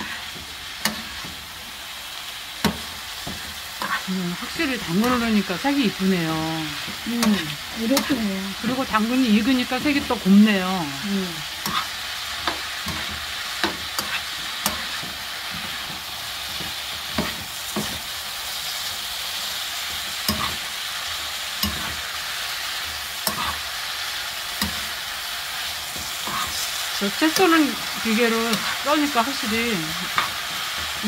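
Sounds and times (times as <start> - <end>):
vegetables sizzling in oil: 0.0 - 31.0
metal spoon scraping pan: 2.6 - 5.5, 11.5 - 18.0, 23.2 - 23.7, 25.9 - 31.0.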